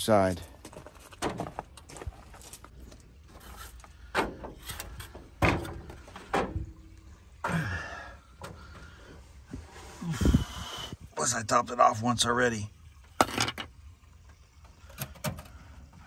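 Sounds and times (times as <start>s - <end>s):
clunks and knocks of objects: 0.7s - 2.2s, 4.0s - 6.9s.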